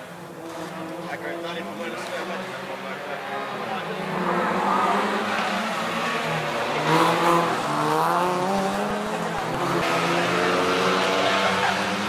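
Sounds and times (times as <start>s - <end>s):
rally car engines revving past: 0.0s - 12.0s.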